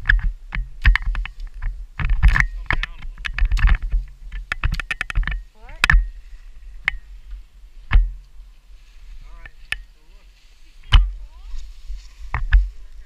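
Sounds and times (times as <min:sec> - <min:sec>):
ski gear clicking and knocking: 0:00.0 - 0:06.1, 0:12.3 - 0:12.7.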